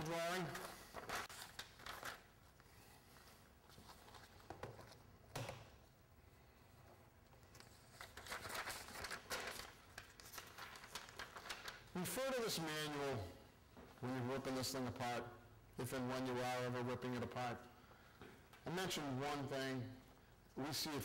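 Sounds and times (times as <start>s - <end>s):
paper pages rustling: 0.4s - 5.1s, 7.3s - 11.9s.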